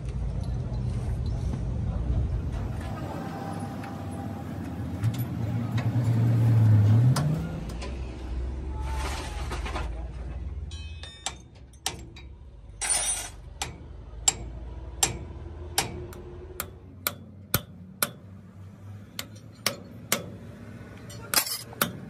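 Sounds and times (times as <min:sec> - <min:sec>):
hammer striking steel punch: 0:13.6 - 0:18.3, 0:19.2 - 0:20.4.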